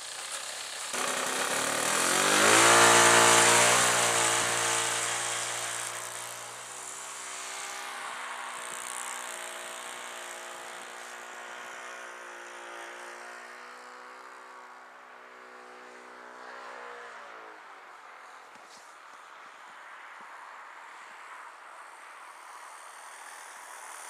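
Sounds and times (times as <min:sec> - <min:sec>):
model plane engine running: 0:00.0 - 0:14.0.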